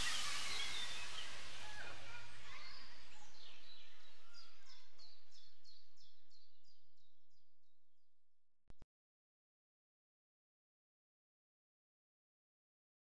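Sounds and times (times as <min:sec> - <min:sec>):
outdoor hiss: 0:00.0 - 0:04.8
birds calling: 0:00.0 - 0:06.1
bird's high falling chirp: 0:00.0 - 0:06.2.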